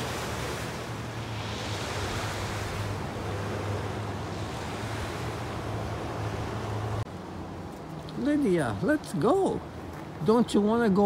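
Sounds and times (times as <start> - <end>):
waves breaking on gravel beach: 0.0 - 5.8.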